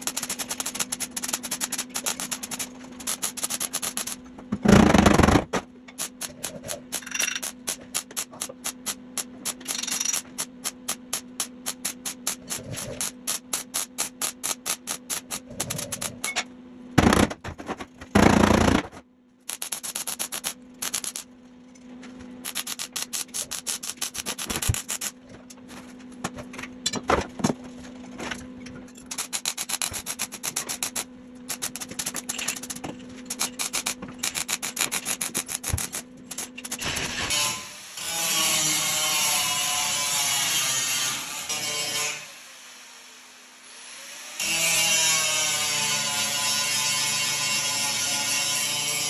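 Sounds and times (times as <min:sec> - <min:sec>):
loud noisy bursts: 0:18.2 - 0:19.0.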